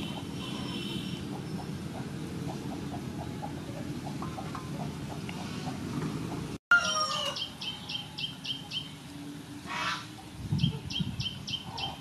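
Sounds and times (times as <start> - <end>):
bird calling: 6.7 - 9.0, 9.7 - 12.0.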